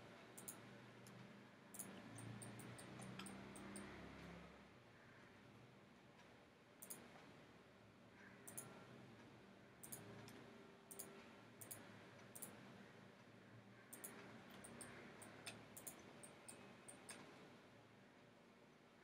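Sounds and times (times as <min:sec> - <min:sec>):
computer mouse clicks: 0:00.3 - 0:04.4, 0:06.2 - 0:07.4, 0:08.4 - 0:08.9, 0:09.8 - 0:12.7, 0:13.8 - 0:17.4.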